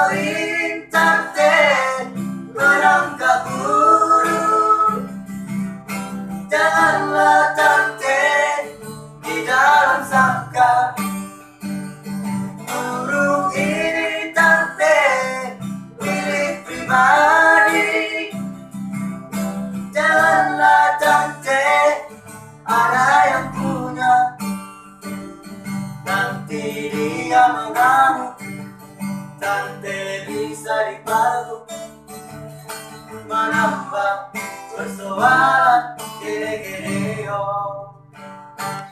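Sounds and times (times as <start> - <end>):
nylon-string guitar strumming: 0.0 - 38.9.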